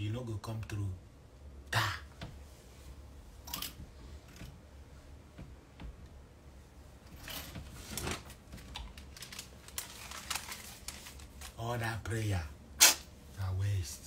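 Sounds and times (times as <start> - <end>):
fabric rustling: 6.6 - 11.6.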